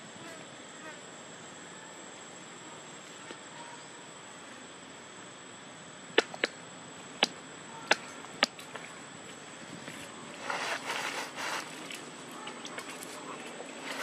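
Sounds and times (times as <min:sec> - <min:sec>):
steady background hiss: 0:00.0 - 0:14.0
sharp clicks: 0:06.2 - 0:06.6.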